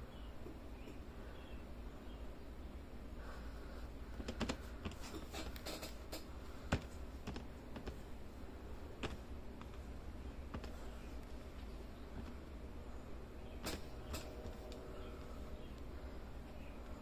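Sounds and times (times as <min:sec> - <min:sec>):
low hum: 0:00.0 - 0:17.0
light clicks and taps: 0:10.5 - 0:12.4.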